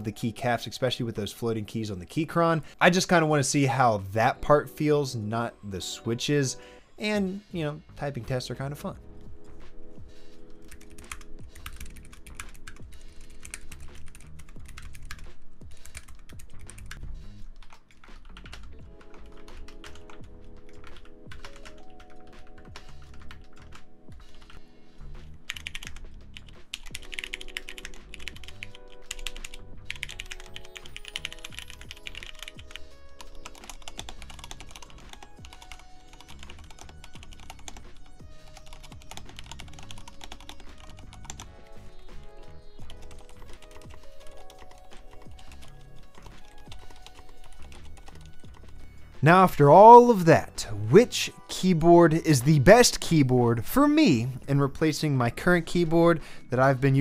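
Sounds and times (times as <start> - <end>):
background music: 0.0 - 57.0
mechanical keyboard typing: 10.6 - 24.6, 25.5 - 26.0, 26.7 - 37.9, 38.6 - 41.4, 42.9 - 48.8.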